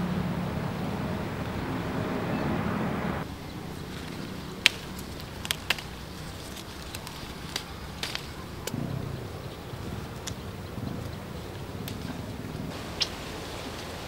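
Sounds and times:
rushing noise with low hum: 0:00.0 - 0:14.0
fruit stems snapping: 0:03.9 - 0:08.8.

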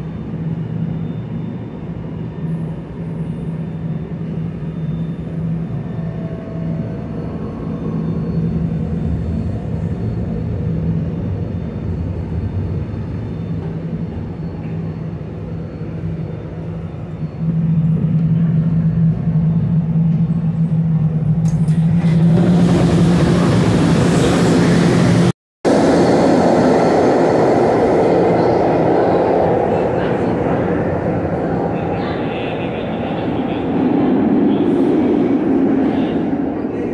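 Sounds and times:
trolley electrical hum: 0:00.0 - 0:36.9
trolley wheel and motor rush: 0:21.4 - 0:32.0.

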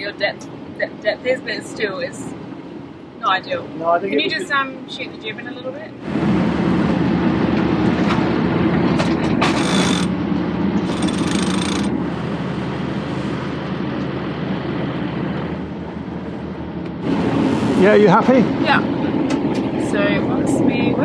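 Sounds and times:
winch ratchet clicking: 0:09.5 - 0:10.1, 0:10.9 - 0:11.9.

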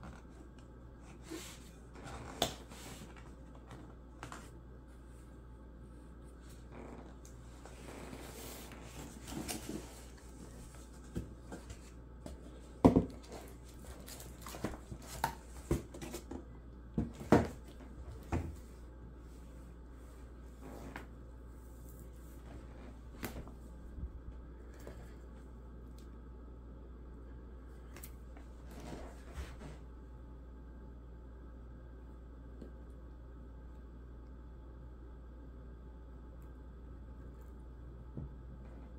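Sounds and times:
steady low hum: 0:00.0 - 0:38.9
cardboard scraping and rustling: 0:07.5 - 0:16.4.

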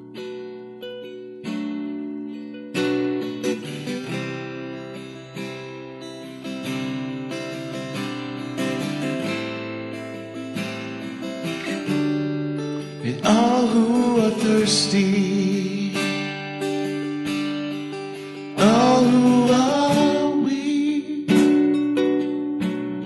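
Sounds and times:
strummed acoustic guitar: 0:00.0 - 0:23.0
person singing: 0:12.8 - 0:17.2, 0:18.2 - 0:23.0.

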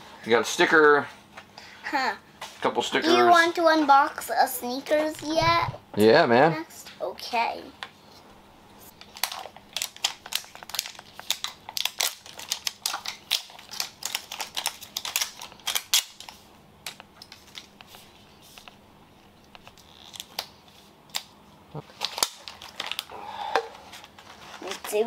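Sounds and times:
plastic packaging clicking and crinkling: 0:08.9 - 0:18.8, 0:19.4 - 0:25.0.

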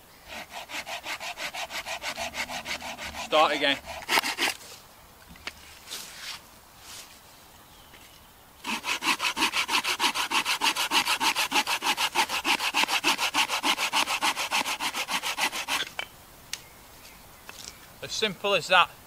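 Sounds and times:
hand saw cutting through log: 0:00.3 - 0:04.7, 0:08.6 - 0:15.9.

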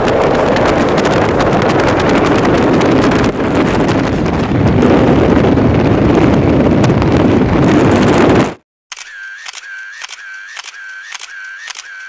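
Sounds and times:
motorcycle engine running: 0:00.0 - 0:07.0
wind buffeting microphone: 0:00.0 - 0:08.6.

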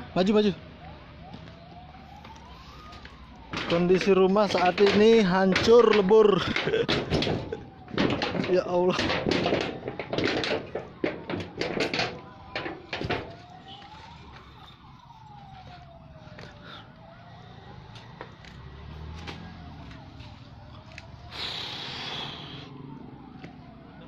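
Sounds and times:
emergency siren wailing: 0:00.0 - 0:24.0
loud knocks and clatter: 0:03.5 - 0:13.5.

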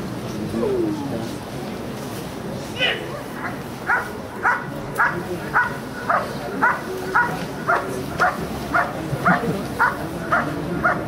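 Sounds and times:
dog barking steadily: 0:03.3 - 0:11.0.

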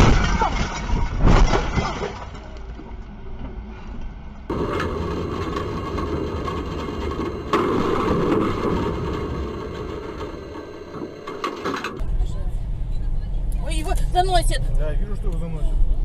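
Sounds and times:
car crash impact: 0:00.0 - 0:02.6, 0:04.5 - 0:12.0
tram running noise: 0:02.5 - 0:16.0.

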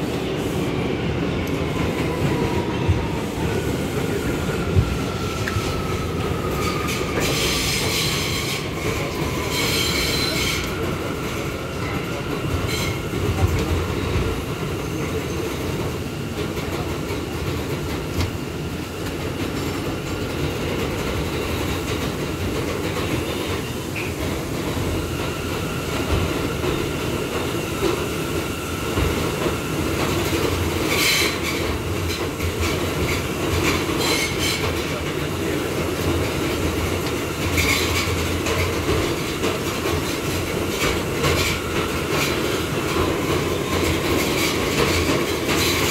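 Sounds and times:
subway train rumbling in tunnel: 0:00.0 - 0:45.9
wheels squealing on rail: 0:04.9 - 0:13.4, 0:14.7 - 0:15.7, 0:30.2 - 0:35.0, 0:37.5 - 0:39.3.

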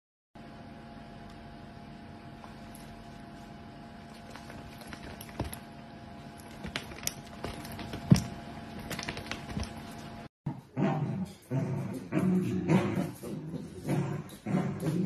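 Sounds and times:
dogs growling: 0:10.5 - 0:15.0.

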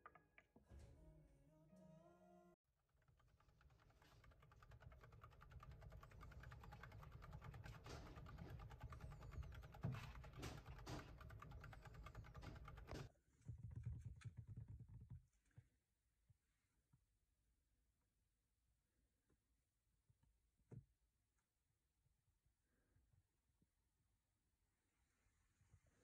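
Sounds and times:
hamster wheel clattering: 0:02.9 - 0:15.2.

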